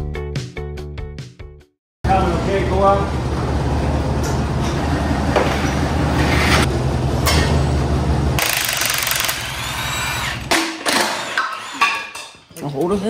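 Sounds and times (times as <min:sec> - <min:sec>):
forklift engine running: 0:02.1 - 0:10.5.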